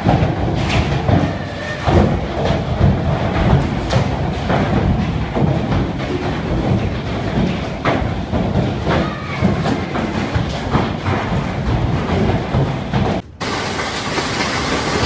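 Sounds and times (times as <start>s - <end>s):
hailstones pelting down: 13.4s - 15.0s.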